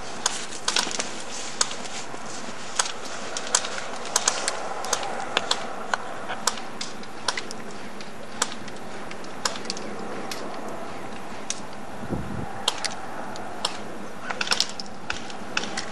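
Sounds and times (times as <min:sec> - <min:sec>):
steady hiss: 0:00.0 - 0:15.8
airsoft gun shots clicking: 0:02.8 - 0:10.6, 0:12.6 - 0:13.0, 0:13.6 - 0:15.9.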